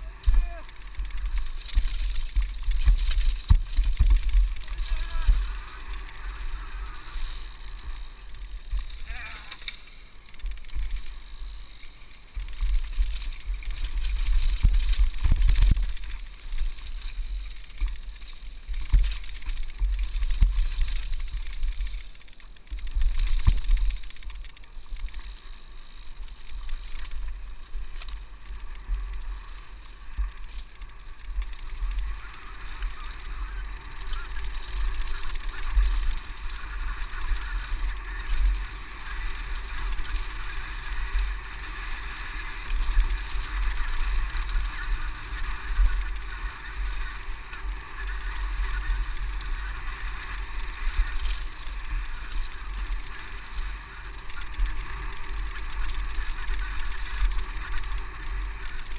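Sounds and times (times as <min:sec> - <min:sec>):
tyre noise on dirt: 0:00.0 - 0:58.9
wind buffeting camera: 0:00.0 - 0:58.9
bike knocks and rattles: 0:00.1 - 0:11.5.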